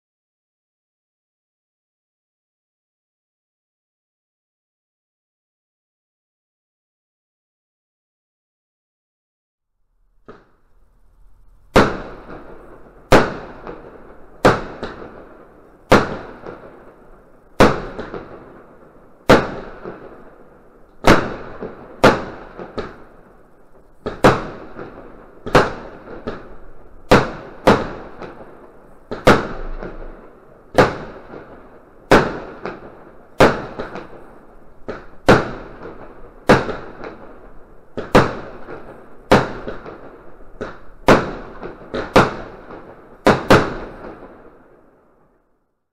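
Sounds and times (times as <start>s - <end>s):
firework bangs with fizz: 11.7s - 17.0s, 17.6s - 20.4s, 21.0s - 23.3s, 24.0s - 44.5s.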